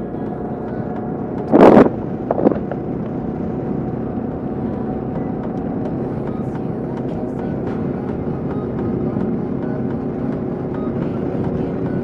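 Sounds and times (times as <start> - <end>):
motorcycle engine running: 0.0 - 12.0
wind rush: 0.9 - 4.7.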